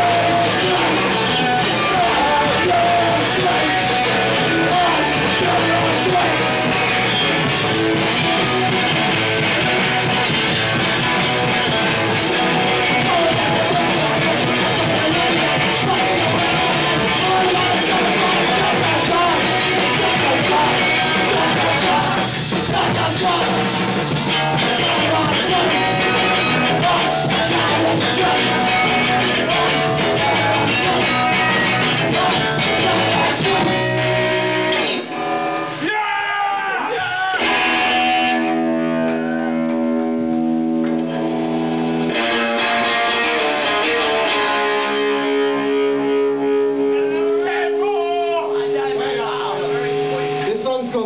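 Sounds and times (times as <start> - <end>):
punk band playing loudly: 0.0 - 51.0
ringing electric guitar notes: 37.4 - 51.0.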